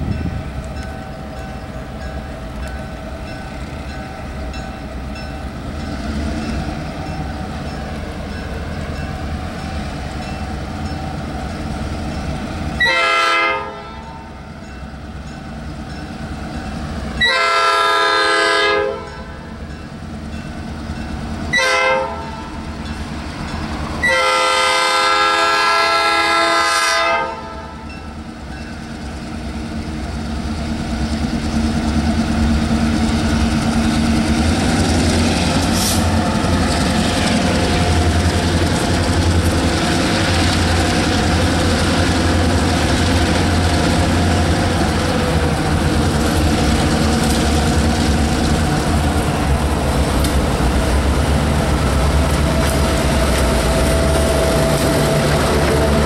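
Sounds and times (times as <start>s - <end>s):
diesel locomotive engines rumbling: 0.0s - 56.0s
locomotive horn blasts: 12.8s - 14.3s, 17.2s - 19.5s, 21.5s - 22.6s, 24.0s - 27.9s.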